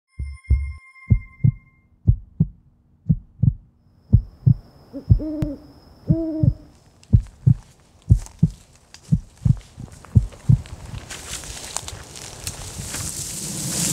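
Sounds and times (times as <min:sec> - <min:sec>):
faint high steady tone: 0:00.1 - 0:02.0, 0:03.8 - 0:06.7
slow heartbeat: 0:00.2 - 0:11.0
owl hooting: 0:04.2 - 0:06.8
hiss: 0:12.5 - 0:13.9.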